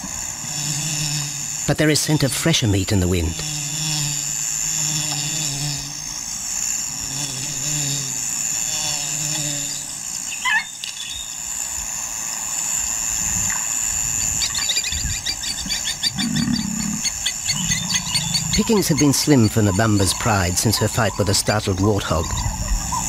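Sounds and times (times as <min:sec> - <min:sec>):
insect chorus: 0:00.0 - 0:23.0
rapid ticking calls: 0:13.5 - 0:23.0.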